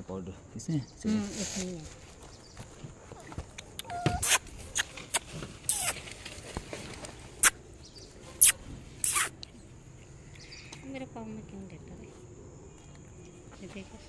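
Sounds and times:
hissing rustles: 1.1s - 10.1s.

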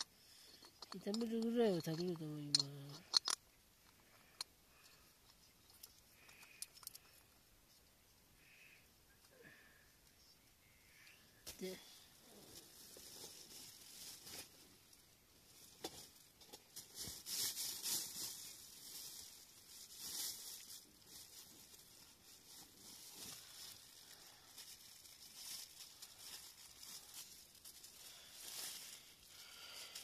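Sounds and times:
plastic bag rustling: 11.5s - 30.0s.

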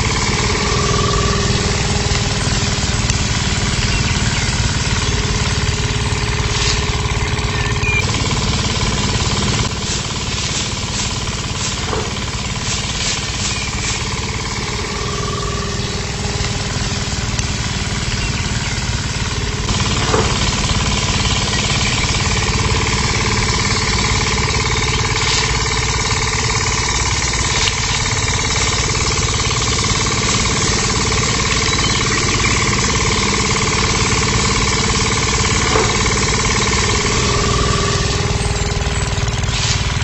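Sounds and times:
rapid rattle: 0.0s - 40.0s
small electric motor running: 0.0s - 40.0s.

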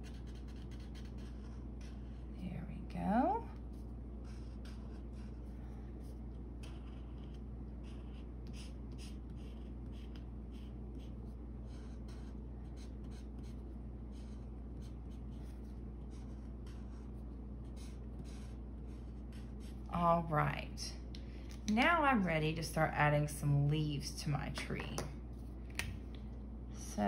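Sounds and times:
marker scratching on paper: 0.0s - 2.2s, 3.7s - 19.9s
steady low hum: 0.0s - 27.0s.

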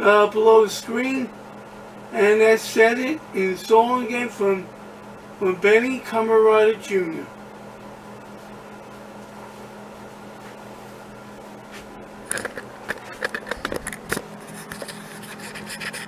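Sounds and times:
steady low hum: 0.0s - 16.0s
camera handling rubs and knocks: 11.7s - 16.0s.

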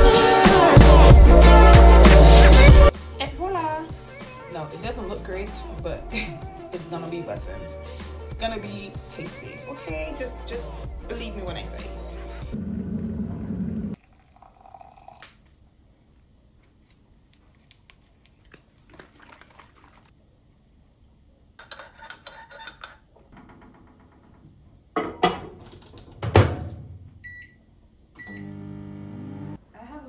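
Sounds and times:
kitchen clicks and clatter: 21.6s - 24.3s
microwave keypad beeps: 27.2s - 27.6s, 28.2s - 28.5s
microwave humming: 27.2s - 29.6s.

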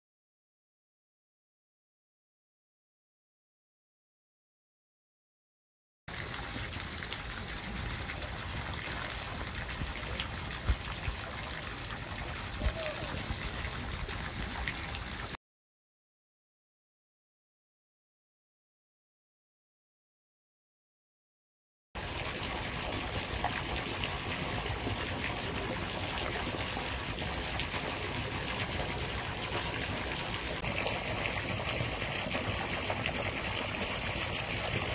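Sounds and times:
gushing water: 6.1s - 15.4s, 22.0s - 34.9s.

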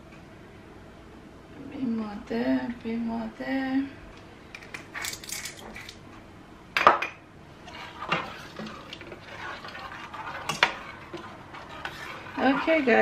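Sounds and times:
soft scraping: 7.6s - 13.0s
spoon and lids clanking on pots: 7.9s - 13.0s.

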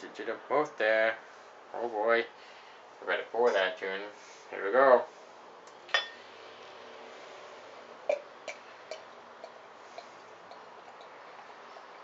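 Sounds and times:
glass clink: 5.9s - 6.2s.

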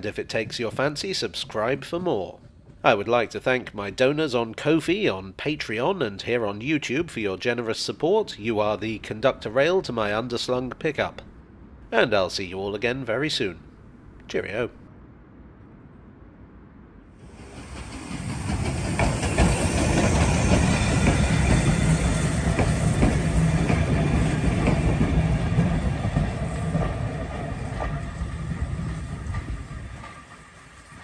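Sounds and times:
steam locomotive passing: 0.0s - 4.8s, 17.2s - 31.0s
wheels clicking over rails: 17.4s - 31.0s.

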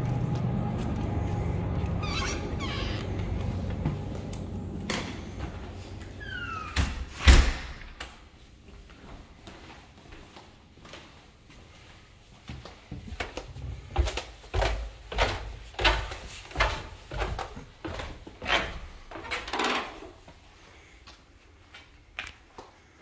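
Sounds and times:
footsteps on concrete floor: 0.0s - 6.2s, 8.6s - 19.3s
footsteps on wooden stairs: 12.3s - 19.3s.

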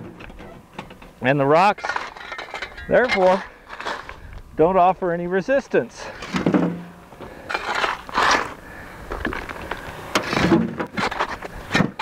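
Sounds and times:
shovel scooping broken rock: 1.7s - 4.2s, 7.5s - 8.6s, 10.2s - 12.0s
stones scraping and clattering: 1.7s - 4.4s, 6.1s - 12.0s.

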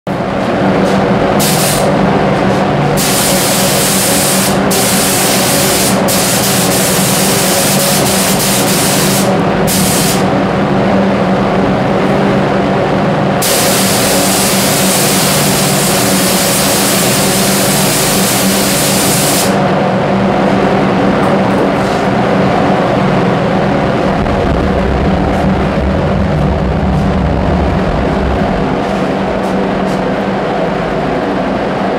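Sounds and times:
extraction fan droning: 0.1s - 31.9s
spray gun hissing: 1.4s - 1.9s, 3.0s - 10.3s, 13.4s - 19.6s.

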